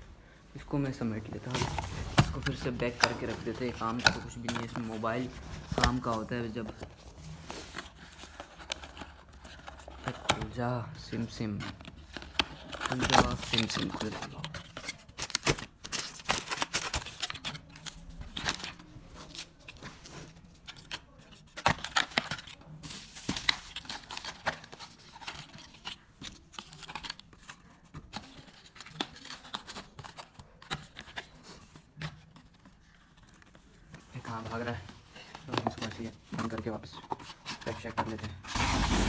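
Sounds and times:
cardboard packaging rustling: 0.8 - 39.0.

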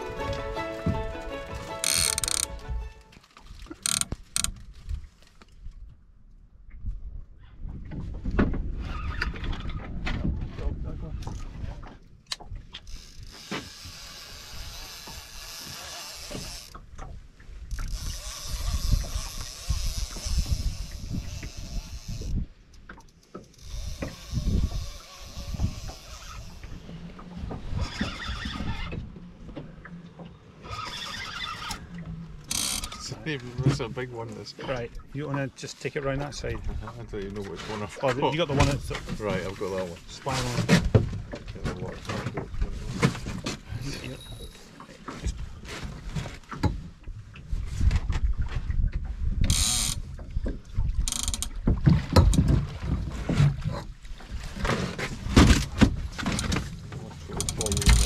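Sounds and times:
fishing reel drag buzzing: 1.8 - 2.6, 3.8 - 4.5, 12.9 - 16.8, 17.9 - 22.3, 23.6 - 26.7, 30.6 - 31.9, 32.5 - 33.1, 49.5 - 50.0
wind rumbling on microphone: 3.6 - 13.3, 16.8 - 22.6, 23.7 - 33.9, 45.2 - 58.0.

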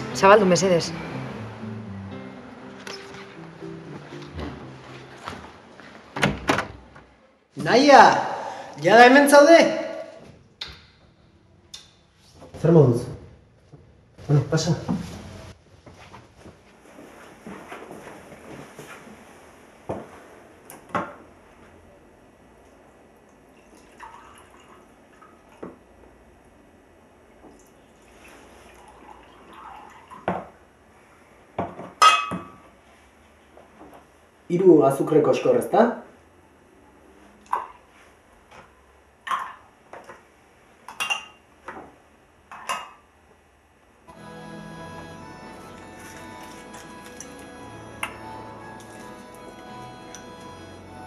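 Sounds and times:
music: 0.0 - 5.6, 44.1 - 51.0
liquid pouring into a mug: 23.2 - 25.6, 27.5 - 30.5.

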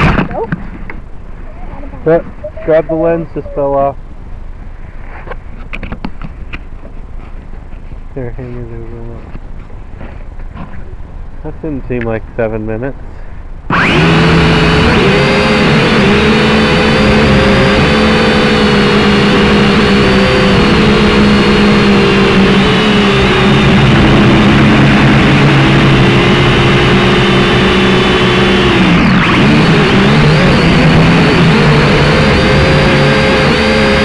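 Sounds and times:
drone motors and propellers whining: 0.0 - 4.0, 13.7 - 34.0.

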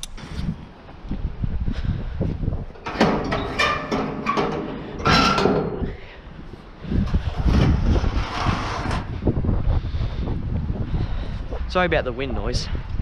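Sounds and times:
wind buffeting microphone: 0.0 - 13.0
metal gate knocking and rattling: 2.7 - 6.0.

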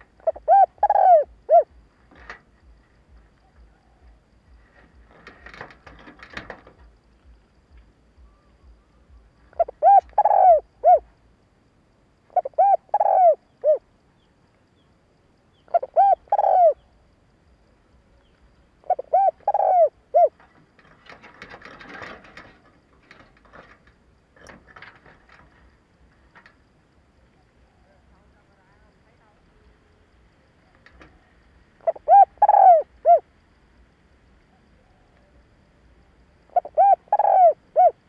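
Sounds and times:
dove cooing: 0.0 - 6.6, 8.2 - 11.1, 12.3 - 13.9, 15.5 - 16.9, 18.1 - 23.8, 30.8 - 33.3, 36.5 - 38.0.

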